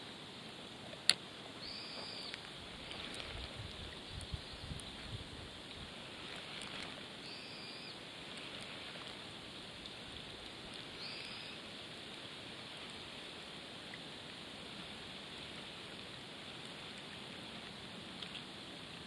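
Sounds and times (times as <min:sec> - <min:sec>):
open-air lakeshore ambience hiss: 0:00.0 - 0:19.0
bird call: 0:01.6 - 0:02.4, 0:07.2 - 0:08.0, 0:11.0 - 0:11.7
faint tick: 0:03.6 - 0:04.9.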